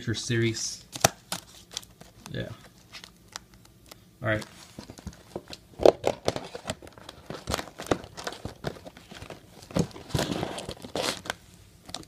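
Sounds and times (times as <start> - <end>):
hands handling cardboard box: 4.3 - 12.0.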